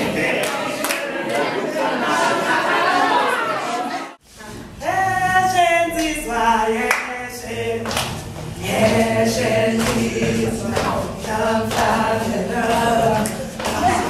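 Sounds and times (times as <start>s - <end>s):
group singing unaccompanied: 0.0s - 4.0s, 4.8s - 14.0s.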